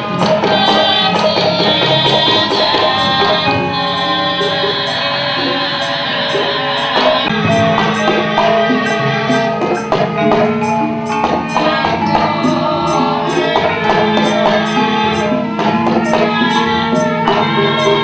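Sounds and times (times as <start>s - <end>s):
gamelan metallophones ringing: 0.0s - 18.0s
short sharp strikes beat: 6.4s - 18.0s.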